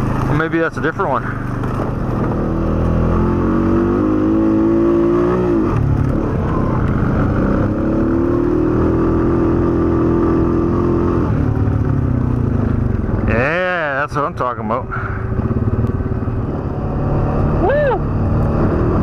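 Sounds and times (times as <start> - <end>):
atv engine revving: 0.0 - 19.0.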